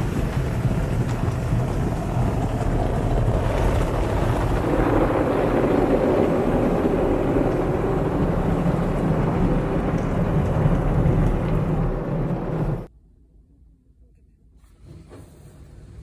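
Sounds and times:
spraying water and machinery: 0.0 - 12.7
low rumble: 0.0 - 12.9.

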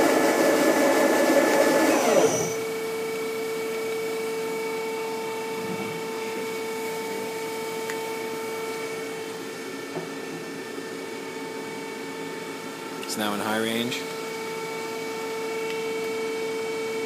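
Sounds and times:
lathe machine whine: 0.0 - 2.7.

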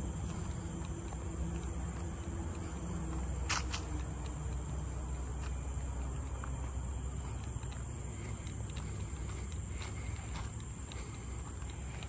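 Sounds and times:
insects droning: 0.0 - 12.0
sharp clicks: 3.4 - 4.8.

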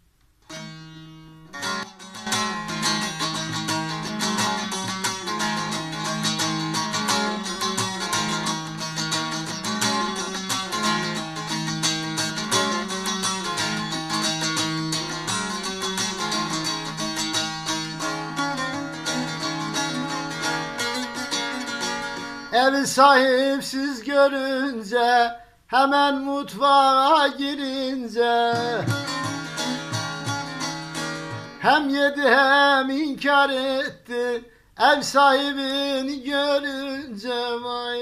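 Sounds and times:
long-necked lute strummed fast: 0.5 - 23.6, 28.4 - 32.8.

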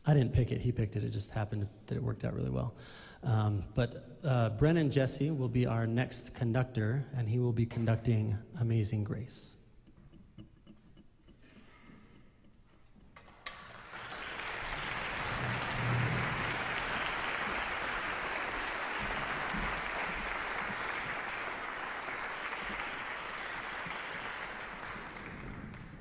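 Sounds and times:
audience applauding: 13.2 - 26.0.

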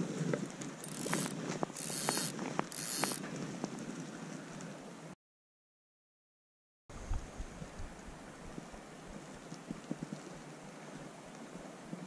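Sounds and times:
fishing reel clicking: 0.8 - 3.2.

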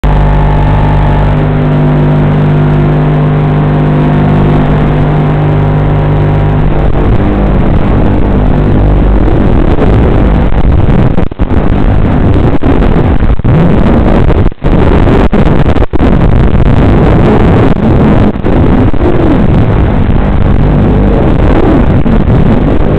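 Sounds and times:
quadcopter motors humming: 0.0 - 10.6
loud rushing noise: 0.0 - 22.9.

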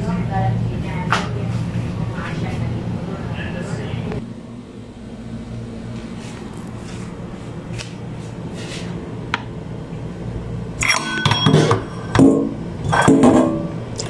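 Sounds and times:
steady low hum: 0.0 - 14.0
metal colander clattering and ringing: 10.8 - 13.7.

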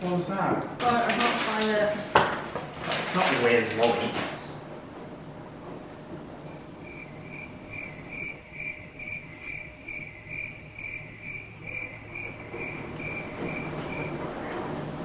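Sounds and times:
low steady hum: 4.4 - 15.0
cricket chirping: 6.5 - 14.6.

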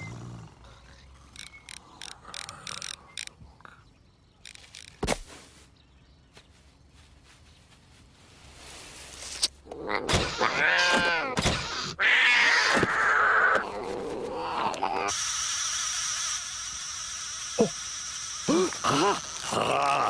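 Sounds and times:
cat long harsh hiss: 15.0 - 19.5.

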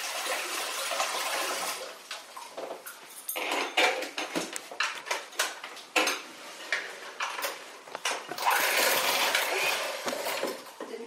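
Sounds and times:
dishes and utensils clinking: 2.6 - 11.0.

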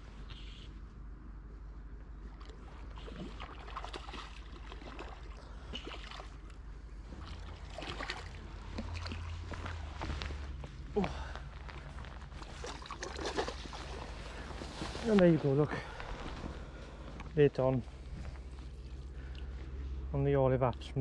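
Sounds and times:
fish splashing in water: 2.8 - 6.5, 7.2 - 9.4, 12.4 - 14.1.

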